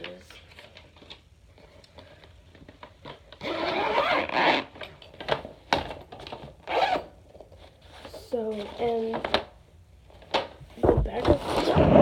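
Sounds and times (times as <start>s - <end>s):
zipper being pulled: 3.4s - 4.8s, 6.7s - 7.1s, 11.2s - 12.0s.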